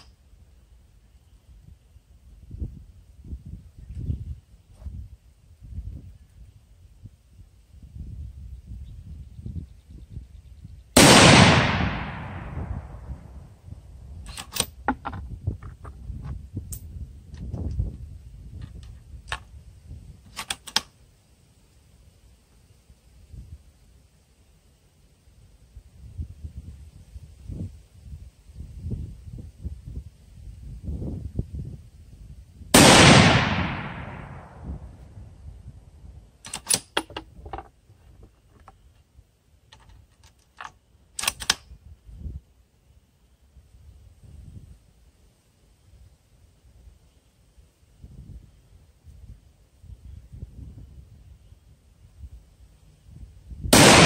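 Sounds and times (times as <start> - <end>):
rifle bolt metallic clicks: 14.2 - 14.9, 20.3 - 20.9, 36.4 - 37.7, 39.7 - 41.7
rifle bolt clicking: 36.4 - 37.2, 40.2 - 41.6.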